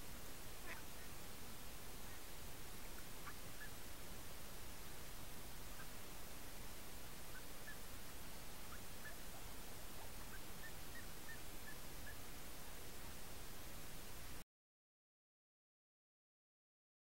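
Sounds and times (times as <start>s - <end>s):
microphone hiss: 0.0s - 14.4s
ducks calling: 0.6s - 1.2s, 2.0s - 3.9s, 4.8s - 6.0s, 7.1s - 7.9s, 8.6s - 12.2s.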